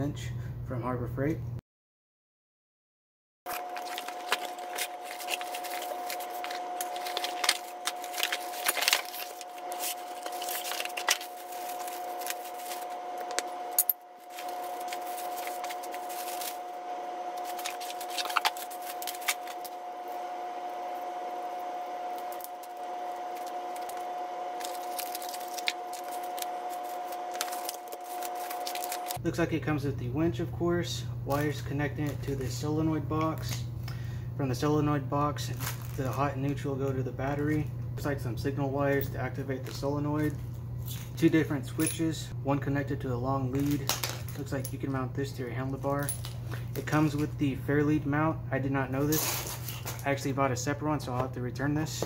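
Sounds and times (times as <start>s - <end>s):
cardboard and plastic bags rustling: 3.5s - 29.2s, 35.3s - 37.6s, 49.0s - 50.2s
steady hum: 3.5s - 52.0s
metal parts clinking on concrete: 49.0s - 50.0s.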